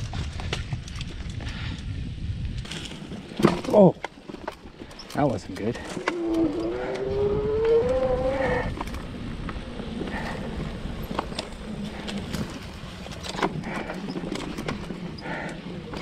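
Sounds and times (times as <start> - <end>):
bike frame rattling and clicking: 2.5 - 16.0
motor whine: 5.8 - 8.7
low hum: 5.8 - 16.0.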